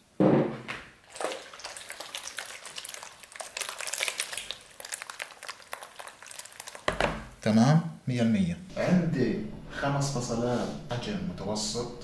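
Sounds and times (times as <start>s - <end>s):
wet crackles and clicks: 1.1s - 7.5s.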